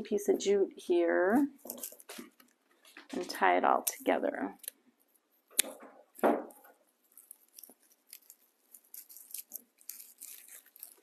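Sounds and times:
dry rustling and crinkling: 0.1 - 11.0
scissors snip: 5.6 - 5.8.

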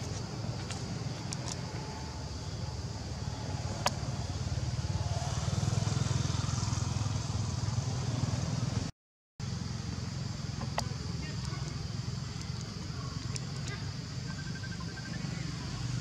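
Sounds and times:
motorcycle engine running: 2.9 - 14.3.

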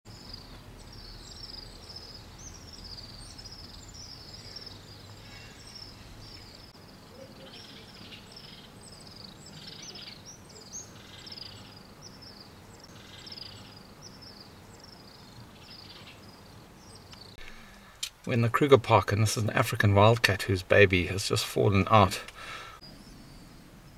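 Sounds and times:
small birds chirping: 0.1 - 23.9.

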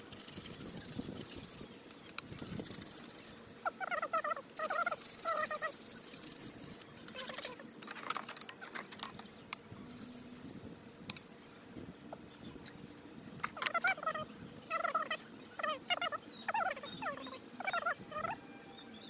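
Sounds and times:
warbling animal call: 2.3 - 7.7, 13.6 - 18.5.

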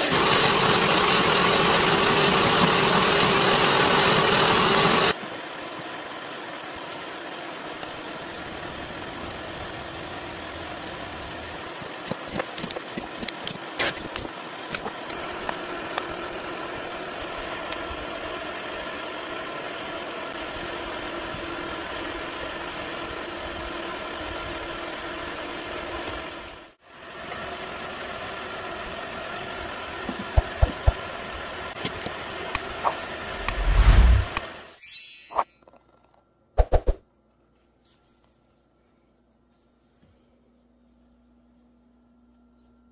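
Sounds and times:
mechanical drone: 0.0 - 5.2, 33.3 - 34.4.

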